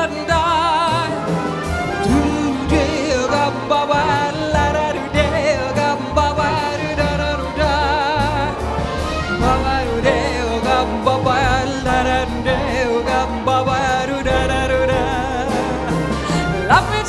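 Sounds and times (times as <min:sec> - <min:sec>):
jazz trio playing: 0:00.0 - 0:17.0
symphony orchestra: 0:00.0 - 0:17.0
woman singing: 0:11.6 - 0:17.0.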